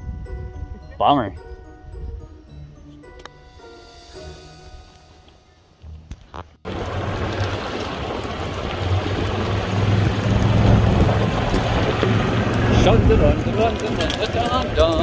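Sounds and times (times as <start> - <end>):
wind noise on microphone: 0.0 - 3.0, 5.8 - 15.0
golf cart rumbling: 5.9 - 15.0.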